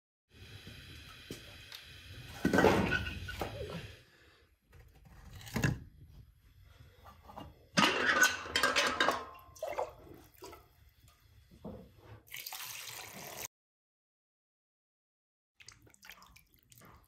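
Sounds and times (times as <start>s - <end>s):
metal lid clattering open: 7.8s - 9.3s
water pouring from mug: 12.3s - 13.5s, 15.6s - 17.0s.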